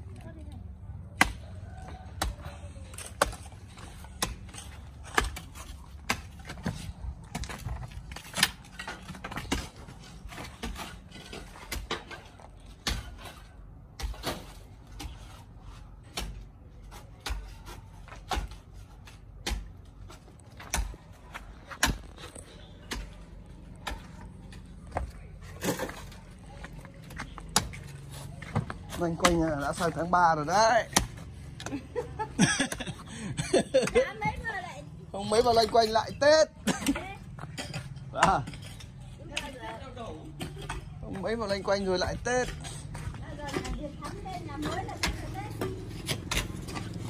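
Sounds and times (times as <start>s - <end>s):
digging tools striking earth: 1.1s - 15.4s, 16.0s - 31.7s, 36.2s - 47.0s.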